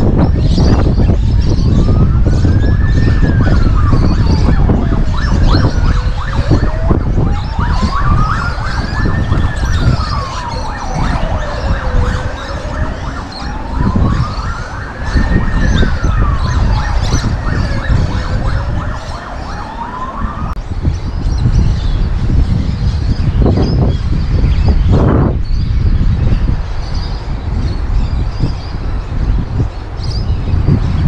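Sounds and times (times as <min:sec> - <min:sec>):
siren wailing: 0:00.0 - 0:20.6.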